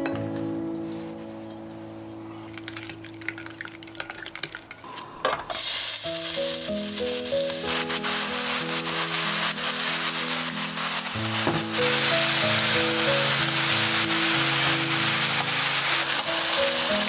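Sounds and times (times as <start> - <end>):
background music: 0.0 - 4.9, 5.6 - 17.0
pork sizzling in a pan: 5.5 - 17.0.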